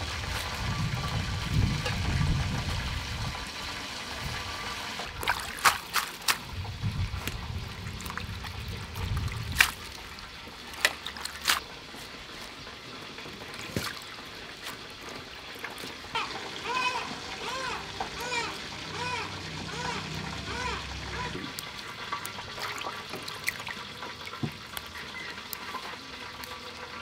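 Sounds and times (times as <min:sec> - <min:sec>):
water trickling and dripping: 0:00.0 - 0:27.0
sharp water splashes: 0:04.9 - 0:11.8, 0:13.6 - 0:14.9, 0:20.6 - 0:26.7.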